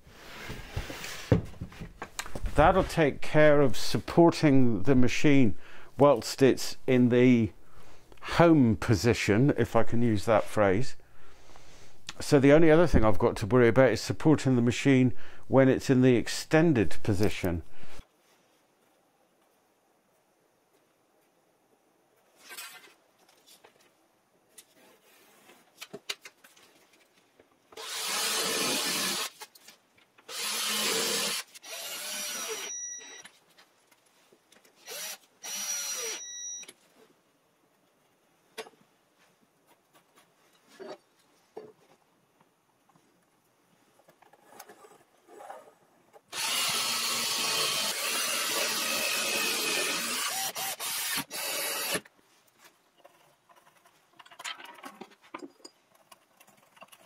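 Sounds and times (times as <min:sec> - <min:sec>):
cordless drill running into wood: 0:27.8 - 0:29.3, 0:30.3 - 0:32.8, 0:34.8 - 0:36.3, 0:46.3 - 0:52.1.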